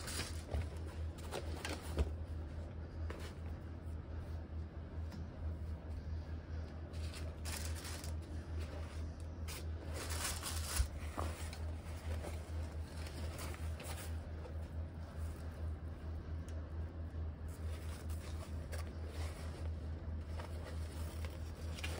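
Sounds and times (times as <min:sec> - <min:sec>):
rustling and scraping of gear: 0:00.0 - 0:02.2, 0:06.9 - 0:15.6, 0:17.5 - 0:21.9
low hum: 0:00.0 - 0:21.9.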